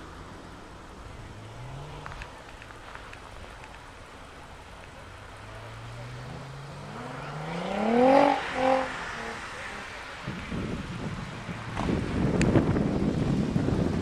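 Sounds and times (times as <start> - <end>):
racing car engine accelerating: 0.0 - 2.8, 4.9 - 12.8.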